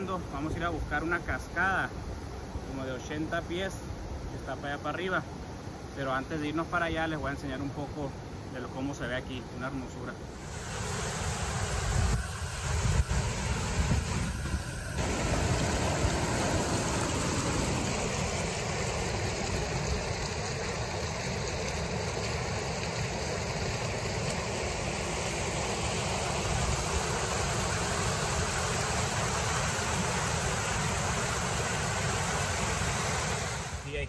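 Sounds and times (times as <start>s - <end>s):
creek water rushing over rocks: 10.2s - 33.9s.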